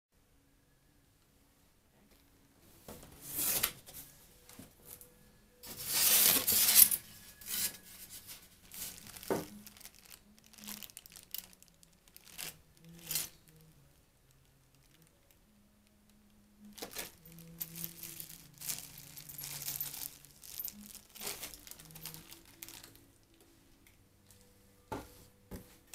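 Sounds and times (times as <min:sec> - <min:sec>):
plastic and bubble wrap crinkling: 0:05.6 - 0:15.4, 0:16.7 - 0:24.5.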